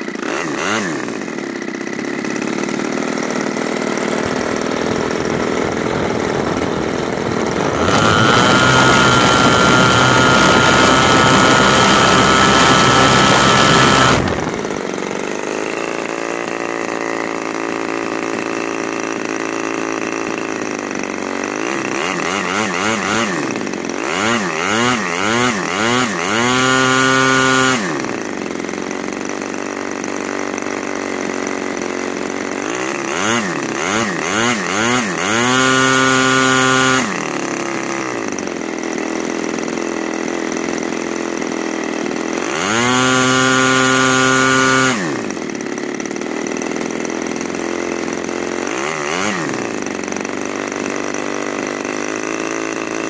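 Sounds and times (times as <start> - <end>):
model aircraft engine revving: 0.0 - 53.0.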